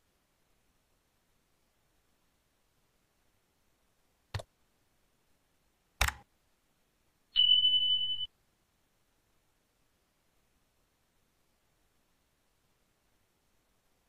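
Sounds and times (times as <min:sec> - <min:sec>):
mouse clicks: 0:06.0 - 0:06.2.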